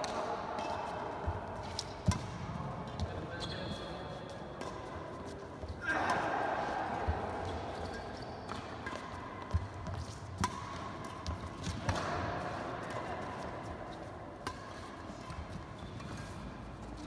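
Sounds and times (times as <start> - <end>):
rackets striking shuttlecock: 0.0 - 3.2, 4.5 - 5.2, 6.9 - 16.4.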